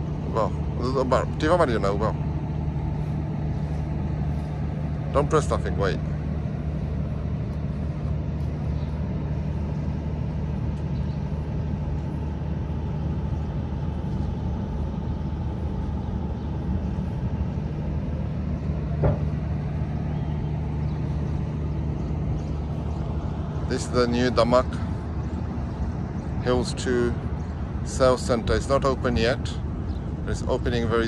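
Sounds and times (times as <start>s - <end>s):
low engine hum: 0.0s - 31.0s
outdoor background noise: 0.0s - 31.0s
brief knock: 19.0s - 19.3s.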